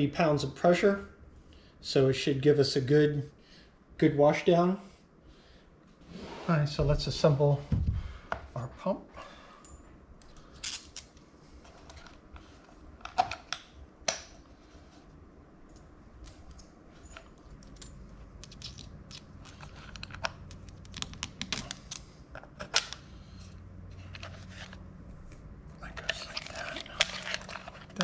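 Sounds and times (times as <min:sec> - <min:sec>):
metal bolts and nuts clinking: 0:15.7 - 0:19.8, 0:26.3 - 0:28.0.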